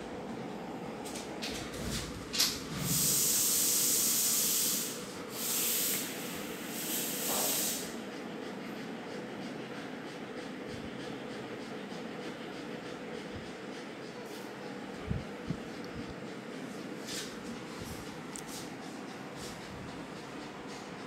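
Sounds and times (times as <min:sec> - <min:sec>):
bursts of hissing: 0:02.9 - 0:08.0.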